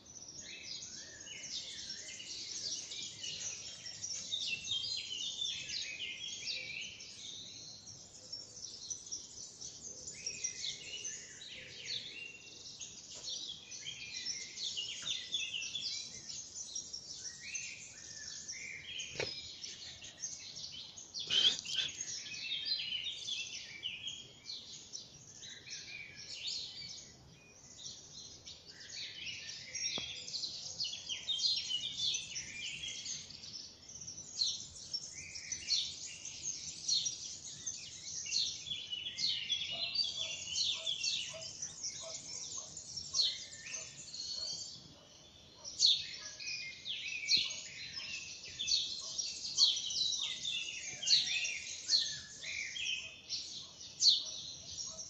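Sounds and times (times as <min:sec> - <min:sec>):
small birds chirping and singing: 0:00.0 - 0:55.0
lower repeated bird call: 0:21.2 - 0:22.4.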